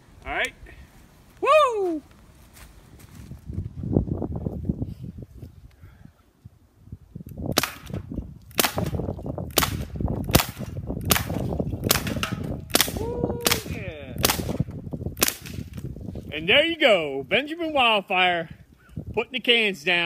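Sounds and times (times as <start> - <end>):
air rifle shots: 7.5 - 15.8.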